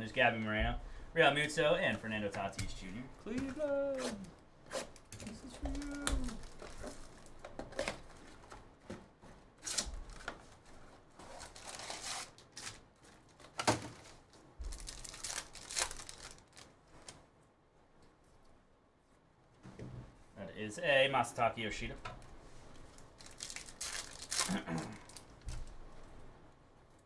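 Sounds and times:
plastic wrap crinkling: 0:04.9 - 0:08.4, 0:09.6 - 0:17.2, 0:22.7 - 0:25.8.

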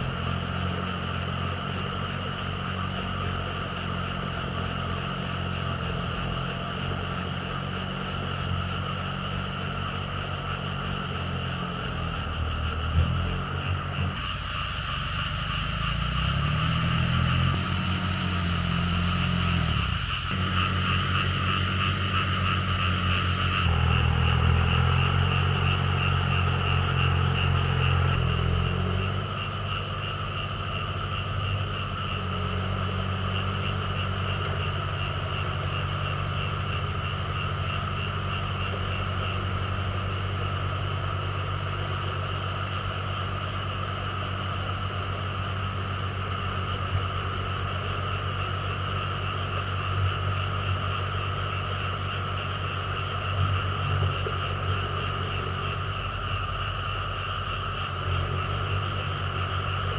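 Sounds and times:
frogs croaking: 0:00.0 - 0:59.9
small tractor engine running: 0:00.0 - 0:59.9.

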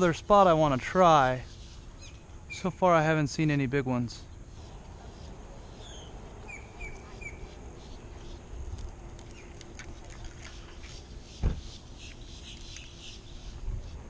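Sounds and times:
small bird chirping: 0:04.3 - 0:08.5, 0:10.5 - 0:14.0
dull thump: 0:11.4 - 0:11.7.

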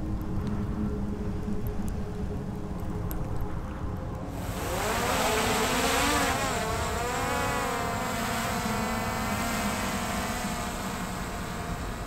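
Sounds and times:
drone propellers whining: 0:04.4 - 0:12.0.

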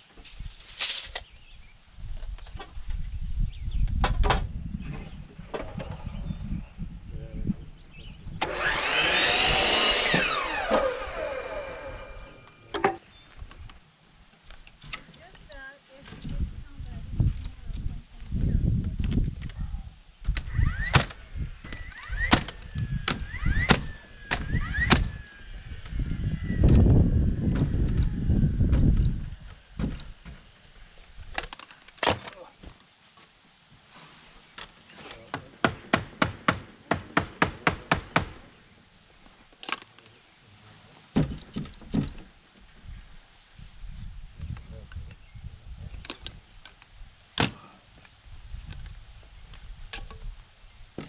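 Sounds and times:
motor whine spinning up: 0:08.4 - 0:12.7, 0:20.4 - 0:29.4
nail gun firing into wood: 0:20.3 - 0:25.2, 0:35.6 - 0:38.5
dull wooden thumps: 0:29.8 - 0:30.5, 0:41.1 - 0:42.3
hammer striking wooden frame: 0:35.3 - 0:38.4.

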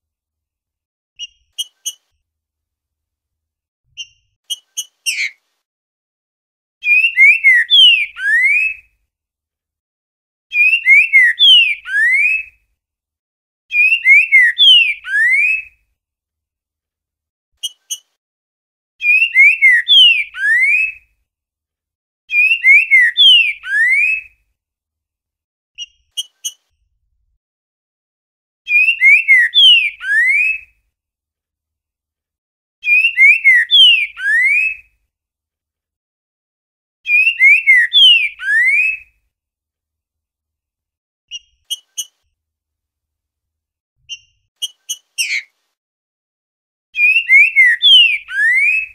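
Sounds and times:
bird whistled song phrases: 0:06.8 - 0:08.9, 0:10.5 - 0:12.5, 0:13.7 - 0:15.8, 0:19.0 - 0:21.0, 0:22.3 - 0:24.3, 0:28.7 - 0:30.7, 0:32.8 - 0:34.9, 0:37.1 - 0:39.1, 0:47.0 - 0:48.9.

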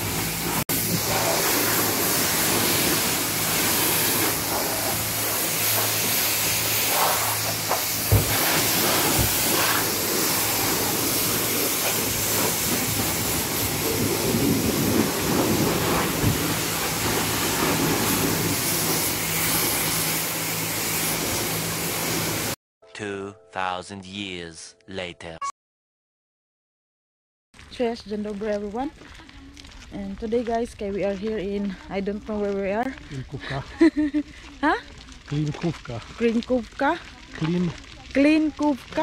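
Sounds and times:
pressure washer spraying water: 0:00.0 - 0:22.6.

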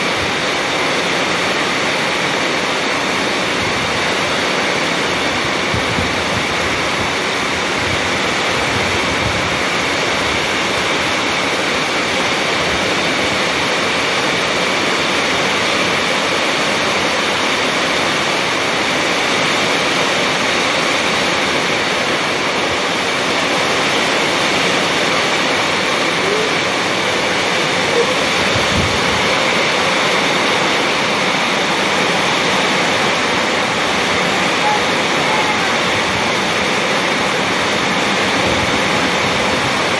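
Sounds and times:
heavy rain on concrete: 0:00.0 - 0:39.9.

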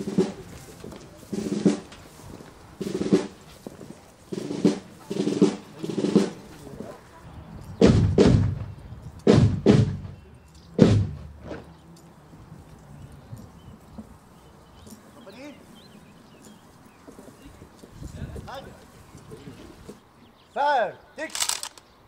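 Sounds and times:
heavy drum strokes: 0:00.0 - 0:07.0, 0:07.8 - 0:11.6.

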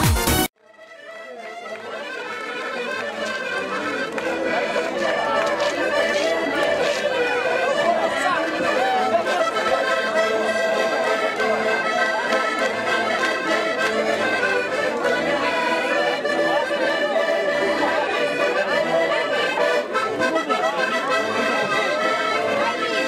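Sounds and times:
accordions playing dance tune: 0:00.0 - 0:23.0.

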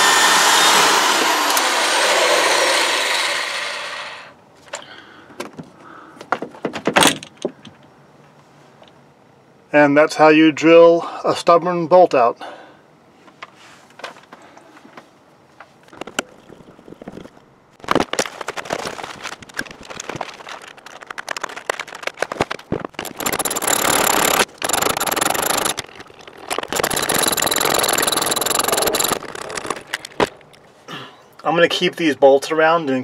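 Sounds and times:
ratchet wrench clicking: 0:23.0 - 0:30.2.

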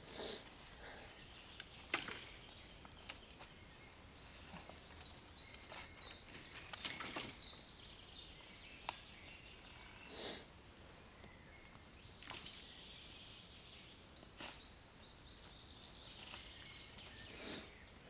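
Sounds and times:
dry leaves and twigs snapping: 0:01.5 - 0:03.5, 0:04.9 - 0:07.6, 0:08.8 - 0:09.1, 0:16.0 - 0:17.0.

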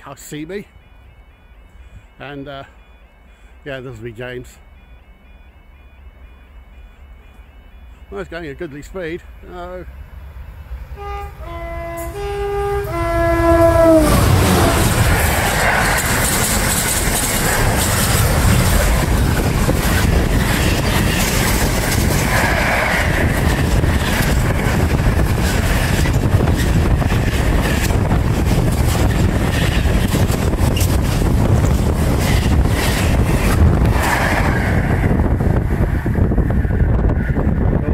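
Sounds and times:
freight train wheels rattling: 0:10.9 - 0:37.8
wind buffeting microphone: 0:12.2 - 0:37.9.

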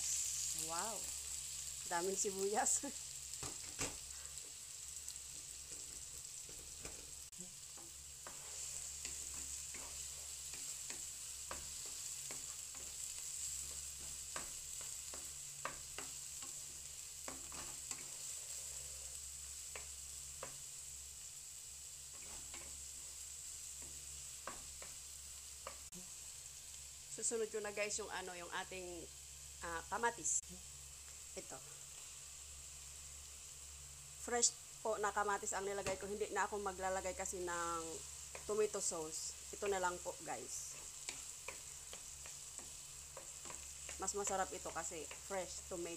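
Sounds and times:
onions sizzling in oil: 0:00.0 - 0:45.9
spatula scraping pan: 0:05.5 - 0:20.6, 0:22.1 - 0:23.1.

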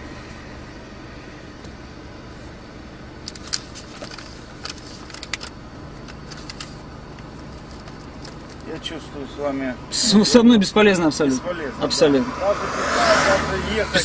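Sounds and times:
low vehicle hum: 0:00.0 - 0:14.0
paper rustling: 0:03.3 - 0:08.7.

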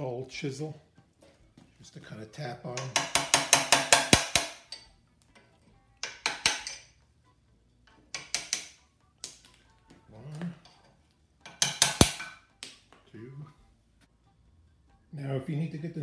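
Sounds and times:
hammer tapping steel chisel: 0:02.7 - 0:04.8, 0:06.0 - 0:06.9, 0:08.1 - 0:08.8, 0:11.4 - 0:12.3.

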